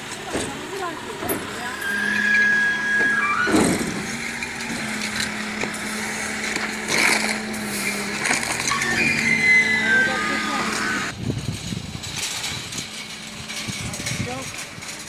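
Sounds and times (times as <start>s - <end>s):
rubbish knocking and clattering: 0.0s - 1.7s, 2.5s - 9.4s
garbage truck engine running: 0.0s - 15.0s
high squeals: 1.5s - 11.2s.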